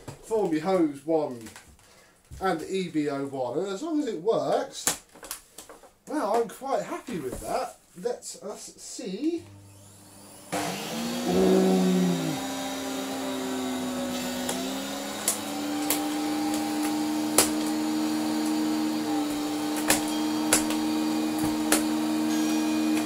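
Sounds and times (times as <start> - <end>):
vacuum cleaner motor running: 9.5 - 23.0.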